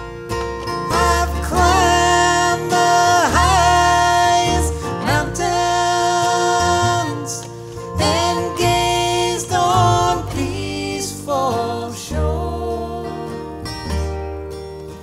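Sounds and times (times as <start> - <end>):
acoustic guitar: 0.0 - 15.0
upright bass: 0.0 - 15.0
man singing long notes: 0.9 - 13.3.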